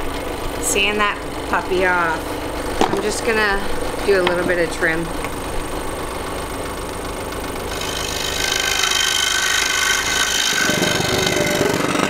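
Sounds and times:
scroll saw cutting wood: 7.7 - 12.0
fast heavy low rattle: 10.4 - 12.0.

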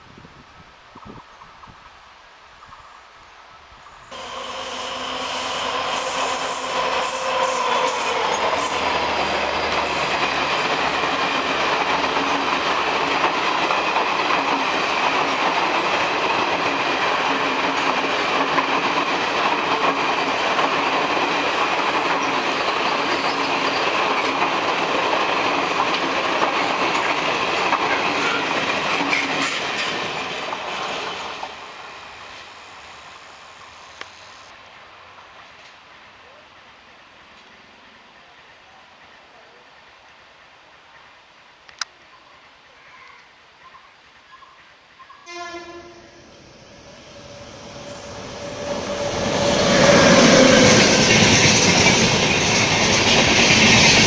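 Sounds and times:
diesel locomotive engine drone: 3.6 - 29.3, 45.0 - 54.0
train wheels running over rails: 4.1 - 32.5, 46.6 - 54.0.

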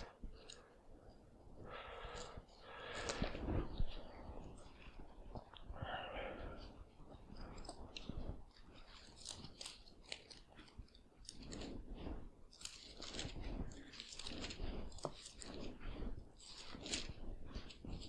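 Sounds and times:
book pages turning and rustling: 6.6 - 18.0.

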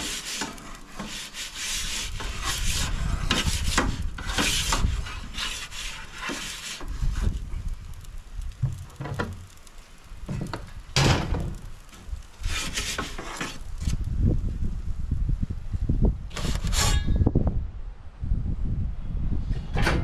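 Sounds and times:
metal peel scraping stone: 0.0 - 7.4, 12.4 - 14.0, 16.3 - 17.2.

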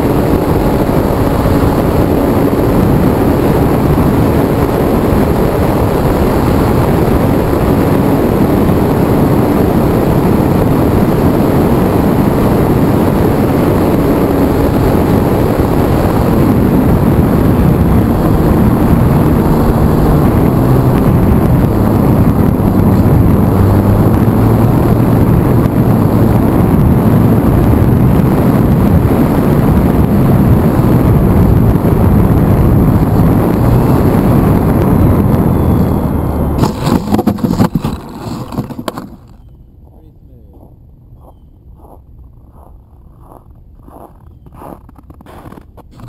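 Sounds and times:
plane knocking and scraping in snow: 36.6 - 40.0, 40.6 - 46.0.

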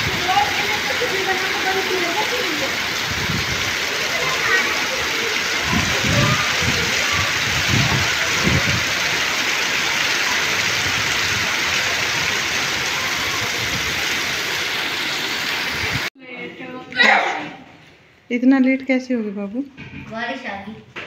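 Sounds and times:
heavy rain on pavement: 0.0 - 16.1.

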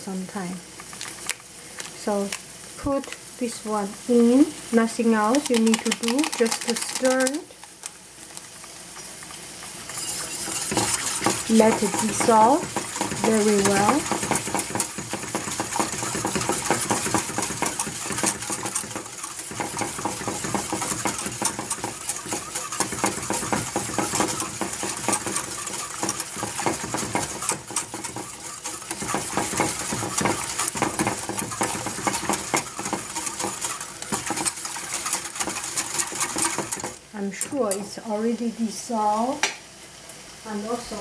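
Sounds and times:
whisk scraping a steel saucepan: 5.1 - 7.8, 9.2 - 37.9.

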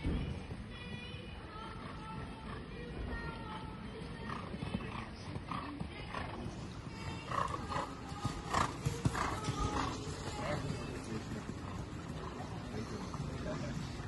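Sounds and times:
horse hoofbeats on sand: 0.2 - 14.0.

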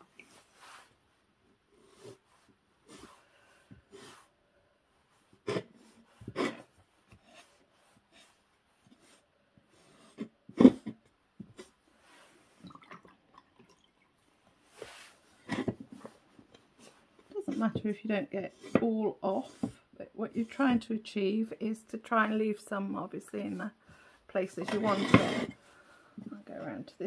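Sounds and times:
damp sponge rubbing ceramic: 5.1 - 12.6, 14.6 - 20.8.

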